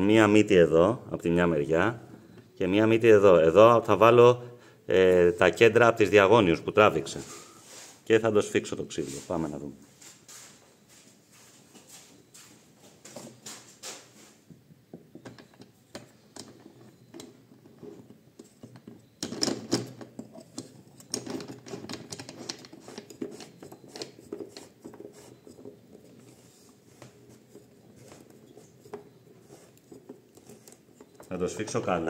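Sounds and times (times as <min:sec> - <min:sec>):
wooden blank knocking and scraping: 0:13.1 - 0:32.0.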